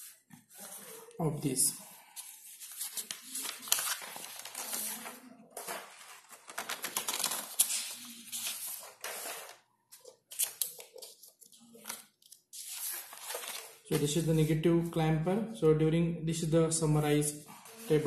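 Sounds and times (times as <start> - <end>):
paper rustling: 0.0 - 1.1, 1.8 - 14.3.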